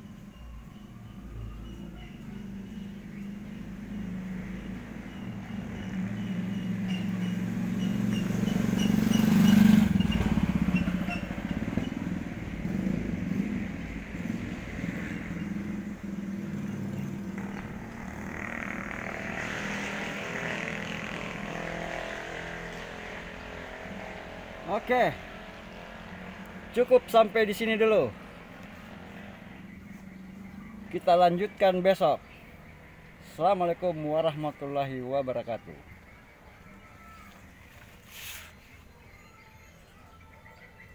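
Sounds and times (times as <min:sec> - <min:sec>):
vehicle engine passing by: 0:00.0 - 0:35.7.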